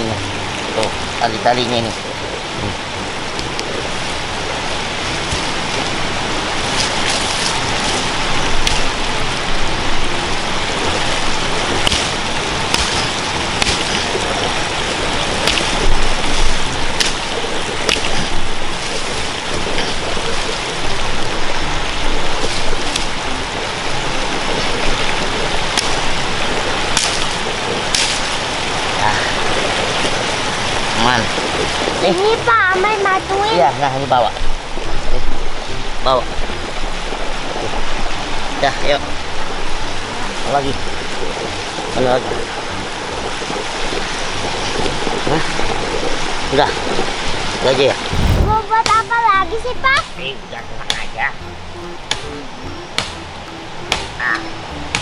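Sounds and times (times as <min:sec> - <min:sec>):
machete chopping branches: 0:12.7 - 0:14.0
loud rushing hiss: 0:46.2 - 0:48.8.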